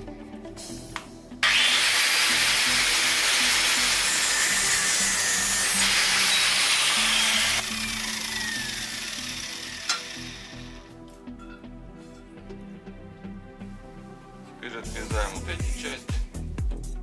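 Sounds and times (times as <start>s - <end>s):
angle grinder cutting steel: 1.4s - 10.9s.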